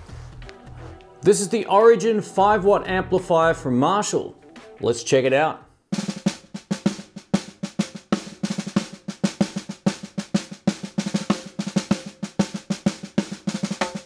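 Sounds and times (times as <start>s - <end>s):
fast drum pattern: 1.3s - 3.8s, 5.9s - 14.0s.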